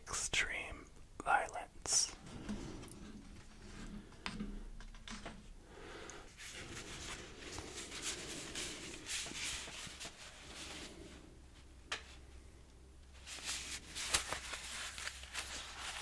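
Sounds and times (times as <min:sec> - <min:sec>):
paper cards rustling: 0:06.4 - 0:10.9, 0:13.2 - 0:16.0.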